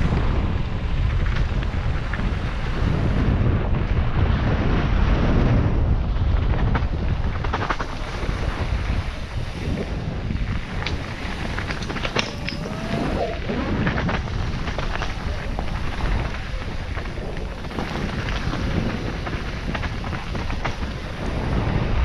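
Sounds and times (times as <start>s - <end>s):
mountain bike rumble on rocks: 0.0s - 22.0s
wind on microphone: 0.0s - 22.0s
sharp rattles and clicks: 6.5s - 22.0s.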